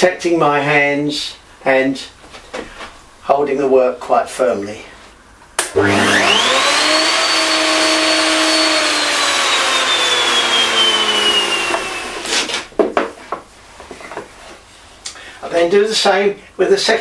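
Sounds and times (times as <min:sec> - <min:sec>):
router motor whine: 0:05.6 - 0:12.7.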